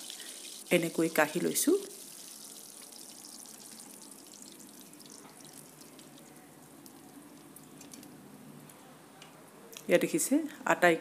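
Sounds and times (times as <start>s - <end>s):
hot oil sizzling and crackling: 0.0s - 6.3s.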